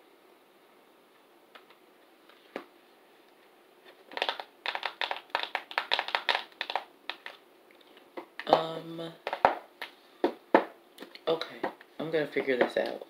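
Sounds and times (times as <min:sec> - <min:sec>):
makeup items clicking: 0:04.1 - 0:07.4.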